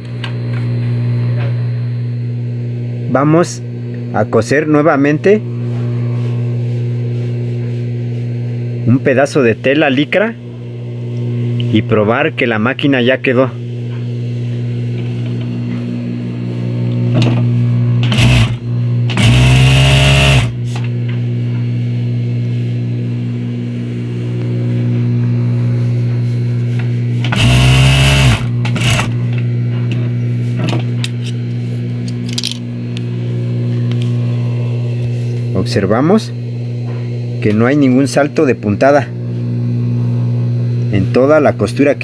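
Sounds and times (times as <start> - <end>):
sewing machine motor humming: 18.0 - 20.6, 27.3 - 29.2
sewing machine stitching whir: 18.0 - 20.6, 27.3 - 29.2.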